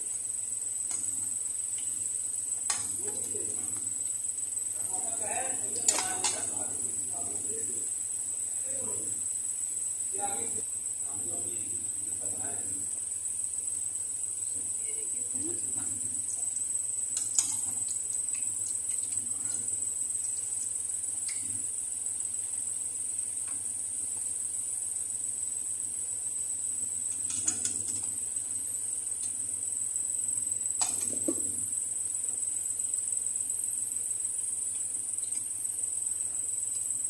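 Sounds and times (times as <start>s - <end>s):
bread deep-frying in oil: 0.0s - 4.8s, 15.4s - 32.8s.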